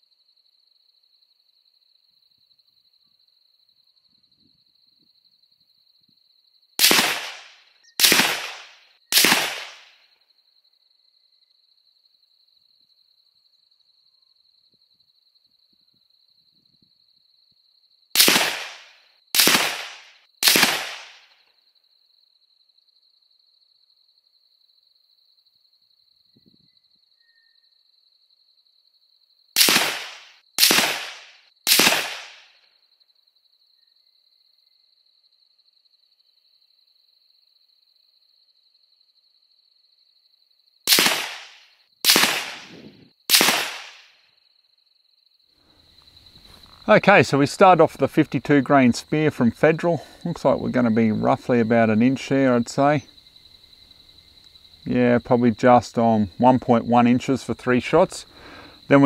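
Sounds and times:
rifle shots: 6.8s - 10.0s, 18.2s - 21.3s, 29.6s - 32.5s, 40.9s - 44.2s.

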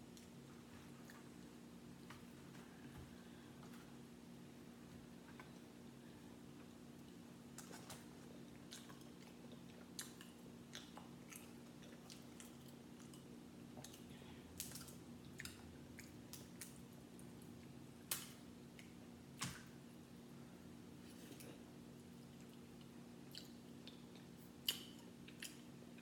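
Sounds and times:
chewing: 7.0s - 16.8s, 22.2s - 26.0s.

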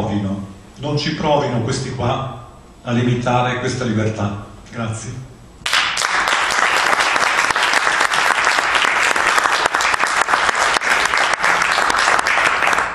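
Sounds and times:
audience applauding: 5.6s - 12.9s.

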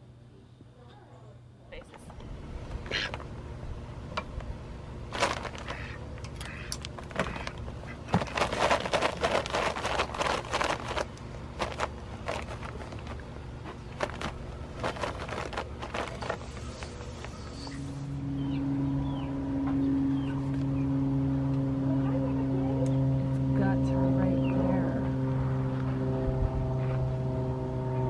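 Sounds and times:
steady low hum: 0.0s - 28.0s
plastic bag crackling and rustling: 5.1s - 6.0s, 6.8s - 17.6s
duck flapping: 5.1s - 17.4s.

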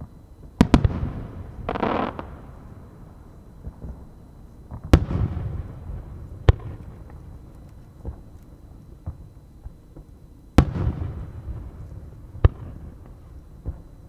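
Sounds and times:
hissing crackle: 5.4s - 10.2s.

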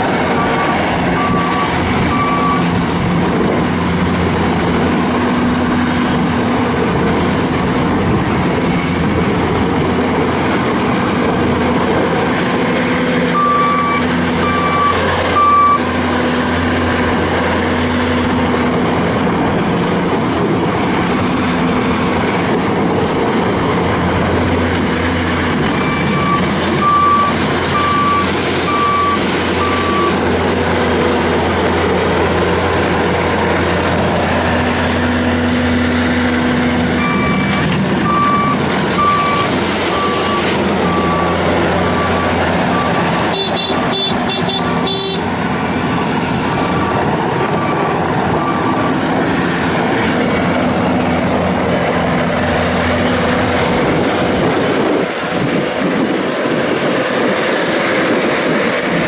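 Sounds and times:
diesel engine running: 0.0s - 59.0s
backup alarm beeping: 13.4s - 15.8s.

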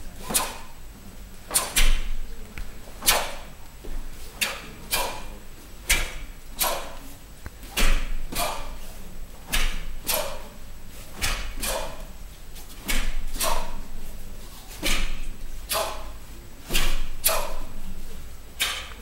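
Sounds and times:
uniforms snapping with strikes: 0.2s - 0.7s, 1.5s - 2.2s, 3.0s - 3.4s, 4.4s - 8.8s, 9.5s - 10.5s, 11.2s - 12.1s, 12.8s - 13.8s, 14.8s - 16.1s, 16.7s - 17.6s, 18.6s - 19.0s.

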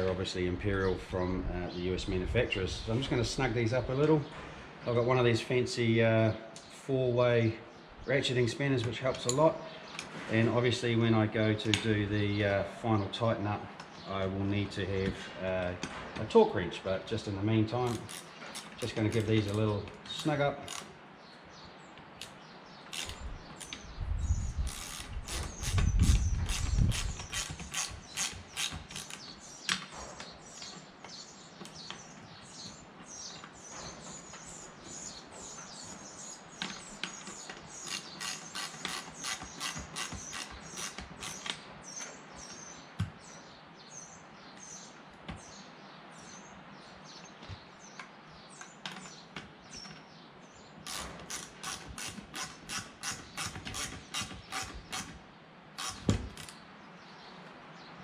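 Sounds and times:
ratcheting spanner clicking: 22.2s - 23.8s, 37.8s - 41.6s, 50.8s - 55.2s, 55.8s - 56.6s.

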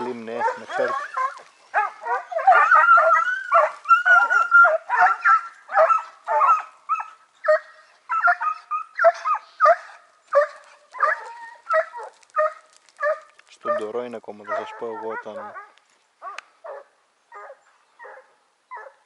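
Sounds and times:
hounds barking and yelping: 0.0s - 19.0s
hounds drawn-out calls: 0.0s - 19.0s.

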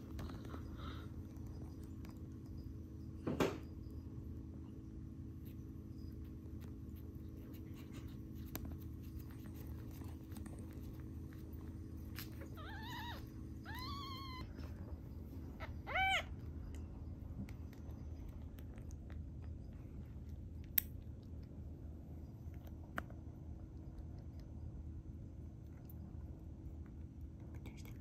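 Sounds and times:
low background hum: 0.0s - 28.0s
newborn kitten mewing: 12.5s - 14.5s, 15.6s - 16.3s.

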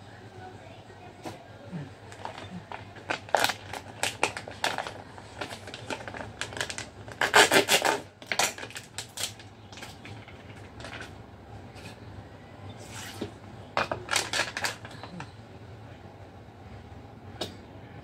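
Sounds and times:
plastic bag crinkling: 2.1s - 11.1s.

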